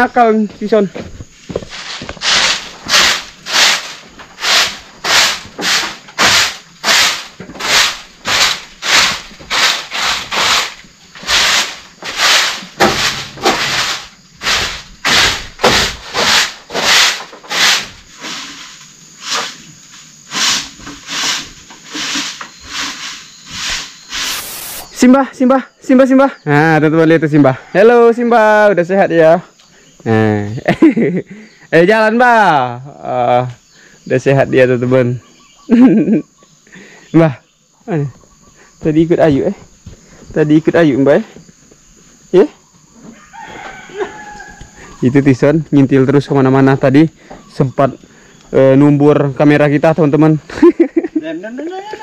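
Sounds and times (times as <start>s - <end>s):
footsteps through dry leaves: 1.6s - 4.0s.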